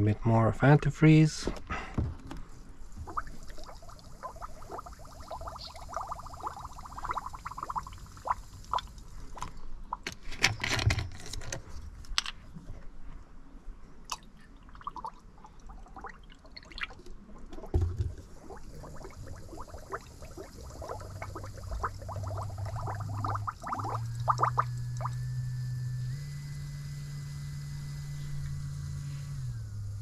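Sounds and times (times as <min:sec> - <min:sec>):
coolant gurgling: 0:02.8 - 0:10.0, 0:14.1 - 0:30.0.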